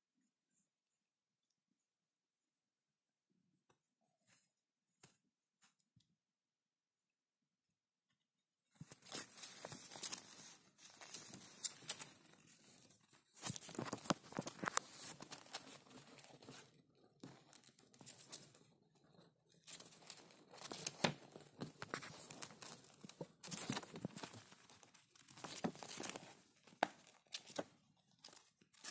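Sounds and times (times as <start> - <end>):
paper rustling and crinkling: 8.7 - 18.6, 19.7 - 28.9
hamster claws scratching: 11.0 - 18.6.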